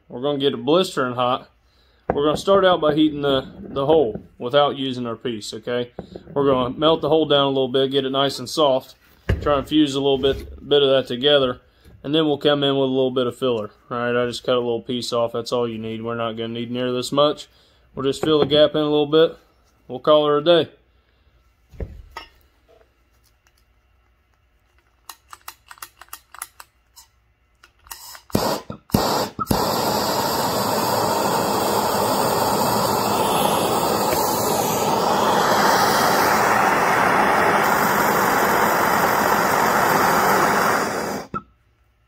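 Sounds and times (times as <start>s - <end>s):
gas torch flame hissing: 27.9s - 41.4s.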